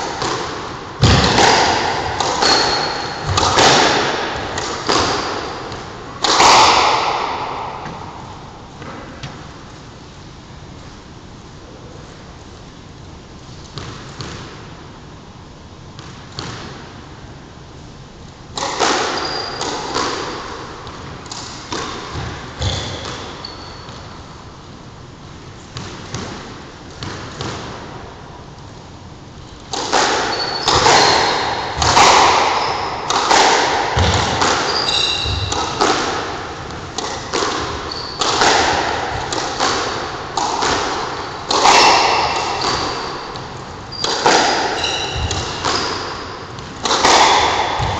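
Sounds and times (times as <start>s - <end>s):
squash ball hitting rackets: 0.0s - 9.6s, 13.7s - 14.7s, 16.0s - 17.0s, 18.5s - 24.5s, 25.7s - 28.1s, 29.6s - 47.9s
ball smacking court walls: 0.1s - 9.5s, 29.7s - 47.9s
shoes squeaking on wooden floor: 34.7s - 35.5s, 37.9s - 38.2s.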